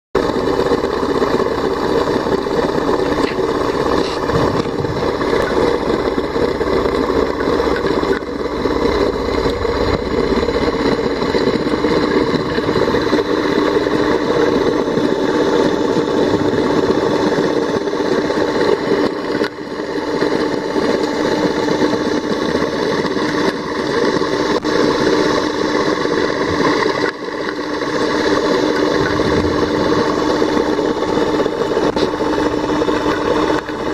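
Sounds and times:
underwater pump hum: 0:00.2 - 0:33.9.

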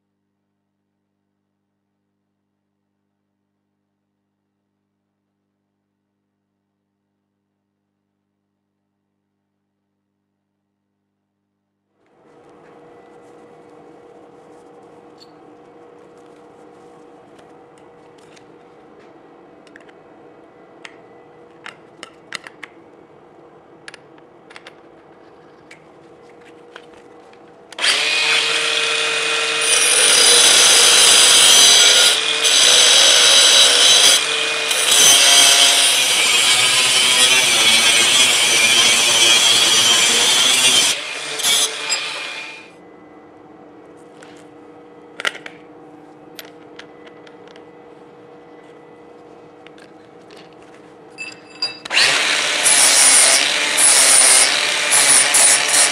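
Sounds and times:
faint workshop hum: 0:00.0 - 0:55.9
angle grinder cutting steel: 0:27.8 - 0:42.7, 0:51.8 - 0:55.9.

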